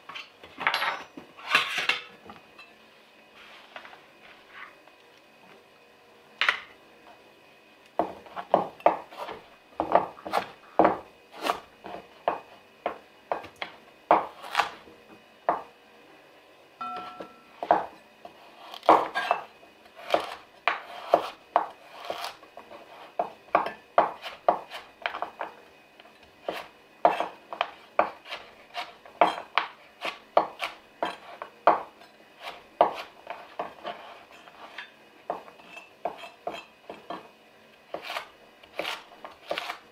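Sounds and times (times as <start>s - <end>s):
knife chopping on a cutting board: 8.0s - 15.7s, 16.8s - 25.6s, 26.4s - 37.3s, 37.9s - 39.9s.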